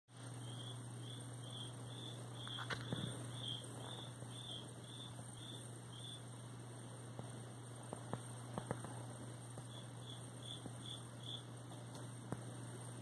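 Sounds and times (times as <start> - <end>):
steady low hum: 0.1 - 13.0
high insect-like chirps: 0.4 - 6.3, 9.6 - 11.5.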